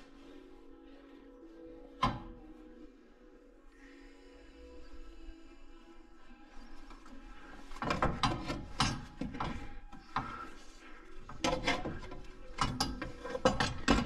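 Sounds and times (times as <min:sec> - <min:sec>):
metallic clanks and clicks: 0:07.7 - 0:10.5, 0:11.2 - 0:14.0.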